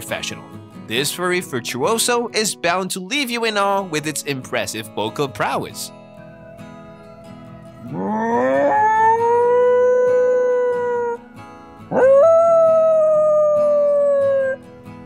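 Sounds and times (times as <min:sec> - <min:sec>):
puppy howling: 0:07.8 - 0:11.2, 0:11.9 - 0:14.6.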